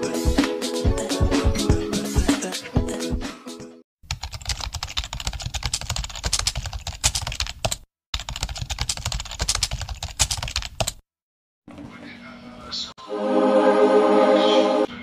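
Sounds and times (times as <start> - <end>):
computer keyboard typing: 4.0 - 11.0.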